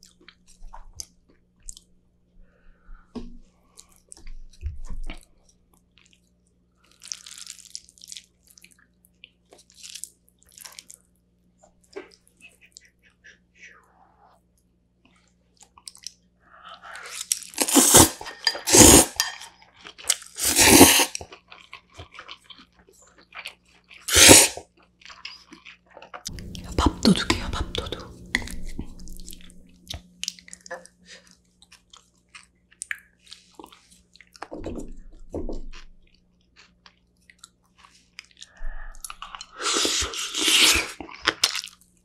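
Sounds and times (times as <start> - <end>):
soft chewing: 0.0 - 18.6, 21.1 - 42.0
loud noodle slurps: 17.6 - 19.2, 20.4 - 21.2, 24.1 - 24.6, 39.6 - 41.0.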